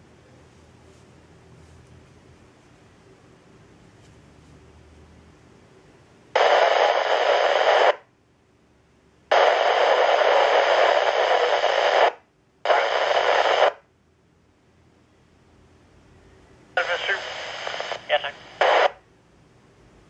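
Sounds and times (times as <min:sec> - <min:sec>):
radio static hiss bursts: 0:06.3 - 0:08.1, 0:09.3 - 0:13.9, 0:16.8 - 0:19.0.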